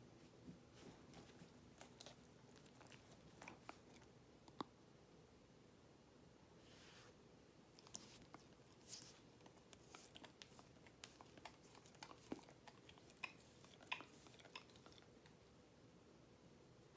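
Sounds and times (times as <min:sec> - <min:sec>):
dog chewing treat: 0:01.8 - 0:04.1, 0:09.4 - 0:15.4.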